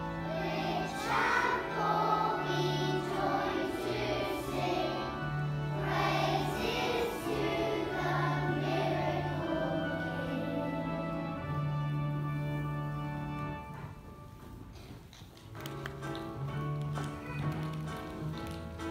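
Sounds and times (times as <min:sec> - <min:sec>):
children singing: 0:00.0 - 0:11.4
instrumental accompaniment: 0:00.0 - 0:18.9.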